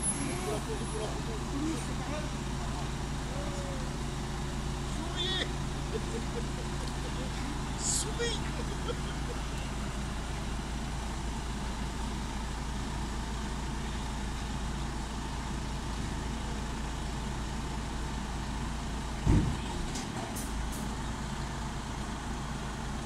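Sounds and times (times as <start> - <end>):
truck diesel engine running: 0.0 - 23.0
loud thump: 19.2 - 19.6.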